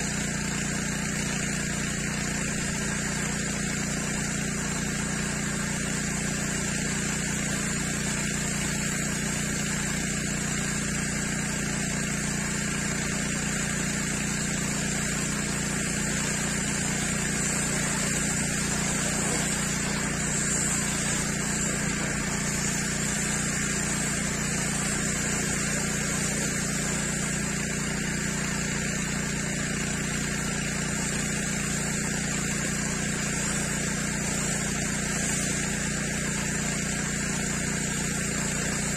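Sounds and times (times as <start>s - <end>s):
pressure washer motor humming: 0.0s - 38.9s
water jet hissing on concrete: 0.0s - 38.9s.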